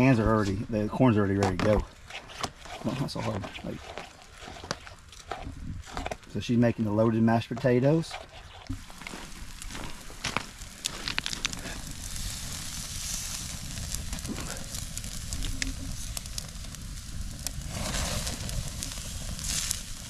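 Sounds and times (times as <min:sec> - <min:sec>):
fire crackling and popping: 0:00.0 - 0:20.0
steady hiss: 0:06.3 - 0:20.0.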